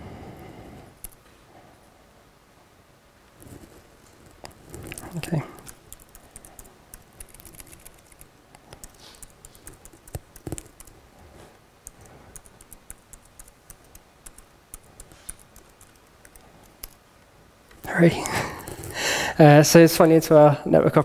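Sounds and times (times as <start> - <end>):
laptop keyboard typing: 3.4 - 11.1, 11.8 - 17.0.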